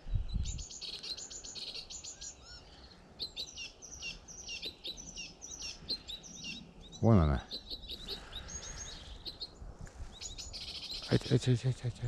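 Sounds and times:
wind on microphone: 0.0 - 0.8
songbirds chirping: 0.0 - 12.0.

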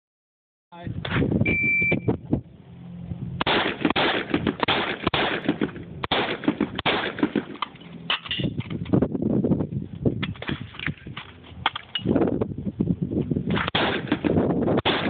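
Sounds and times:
rapid gunshots: 3.4 - 7.6, 13.5 - 15.0.

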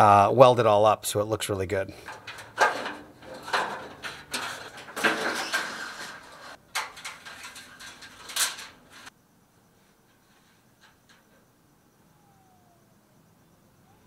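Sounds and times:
parts and tools being handled: 2.0 - 9.1.

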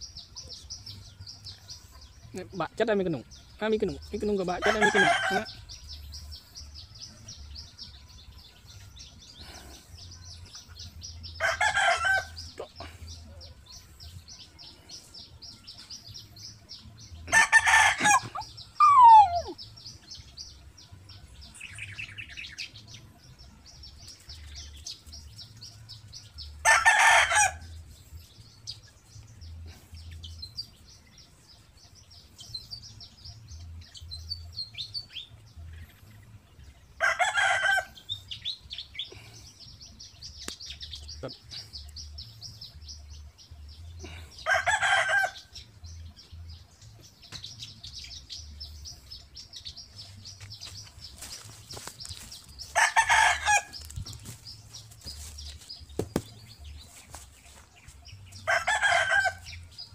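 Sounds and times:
rooster crowing: 44.4 - 45.5, 52.8 - 53.8, 58.5 - 59.5.

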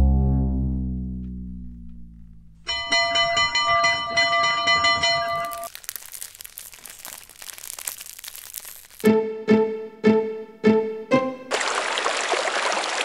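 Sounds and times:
dense crackling noise: 0.1 - 3.6, 4.4 - 9.2.

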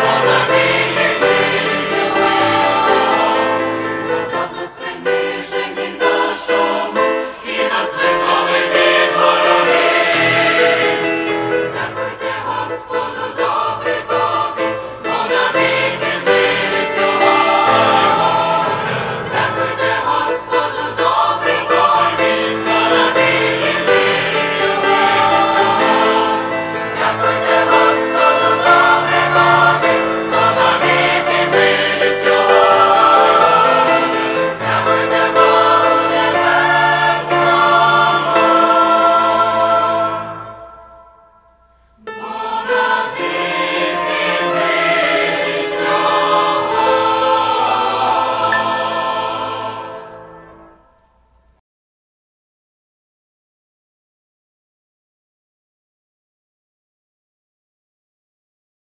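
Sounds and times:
mixed choir singing a hymn: 0.0 - 41.3, 42.0 - 50.8.

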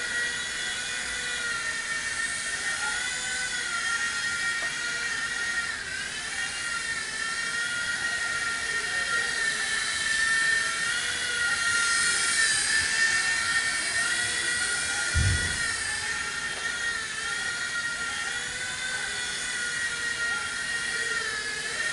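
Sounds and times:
rc helicopter motor whine: 0.0 - 21.9
low thump: 15.2 - 15.7.

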